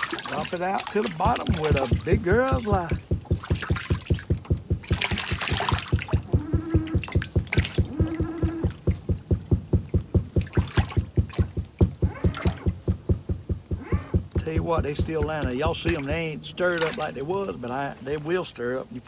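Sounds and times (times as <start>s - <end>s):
boat engine pulsing: 0.0s - 19.0s
water sounds: 0.0s - 19.0s.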